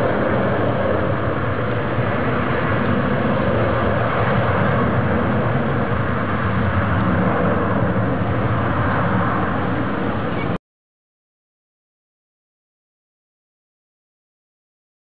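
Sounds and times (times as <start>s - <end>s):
distant jet engines roaring: 0.0s - 10.6s.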